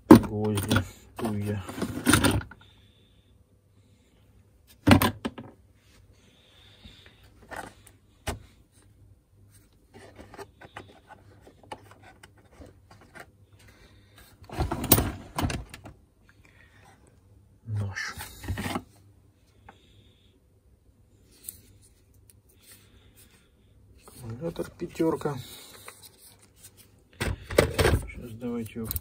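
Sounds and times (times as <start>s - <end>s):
plastic knocks and clicks in tool case: 0.0s - 0.9s, 4.8s - 5.6s, 27.2s - 28.1s
loud plastic clatter: 27.2s - 28.1s.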